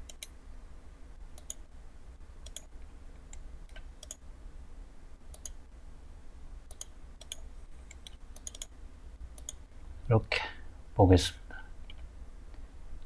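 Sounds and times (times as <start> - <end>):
computer mouse clicking: 0.0 - 0.4, 1.4 - 1.6, 2.4 - 2.7, 3.3 - 4.2, 5.3 - 5.6, 6.7 - 8.7, 9.4 - 9.6
low electrical hum: 0.0 - 13.0.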